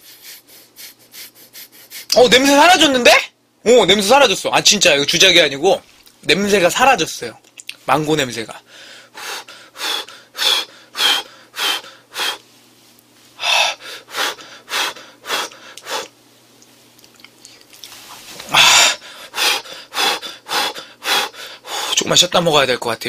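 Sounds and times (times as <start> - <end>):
man puffing breath: 8.7 - 12.4, 13.4 - 16.2, 18.4 - 22.0.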